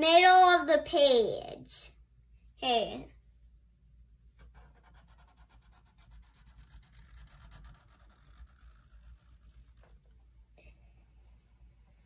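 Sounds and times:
low steady hum: 0.0 - 12.0
marker scratching on paper: 4.4 - 10.1.

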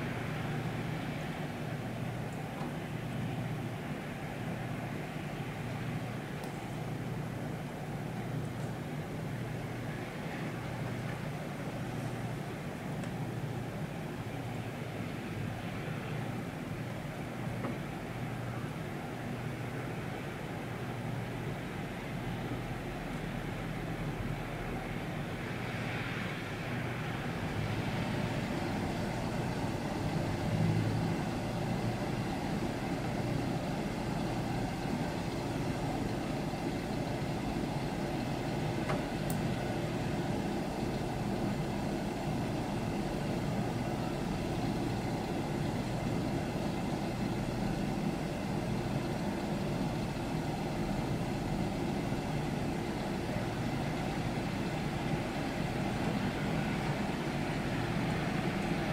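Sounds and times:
distant traffic rumble: 21.2 - 58.9.

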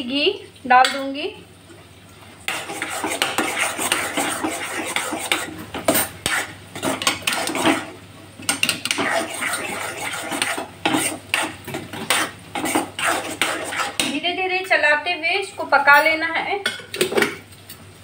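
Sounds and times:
metal spoon scraping pan: 2.5 - 14.2.

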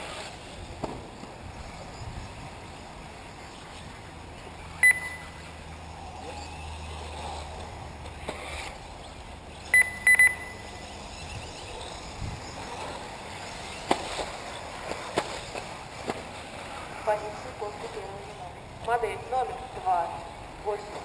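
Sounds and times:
low steady hum: 3.4 - 8.2
short electronic beeps: 4.8 - 5.4, 9.7 - 10.8.

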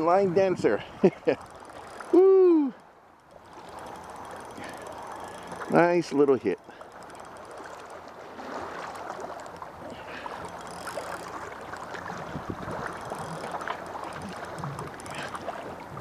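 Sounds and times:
water lapping and sloshing: 0.0 - 16.0
wind on microphone: 12.1 - 16.0.

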